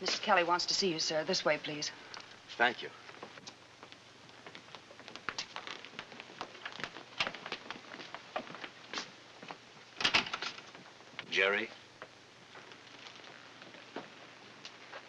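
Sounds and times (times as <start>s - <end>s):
footsteps on hard floor: 3.1s - 9.6s.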